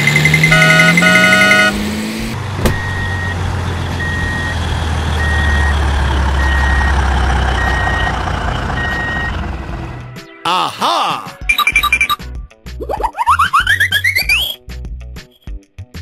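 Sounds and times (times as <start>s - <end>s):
truck reversing alarm beeping: 0.0s - 1.8s, 2.6s - 9.6s
diesel engine rumble: 0.0s - 10.2s.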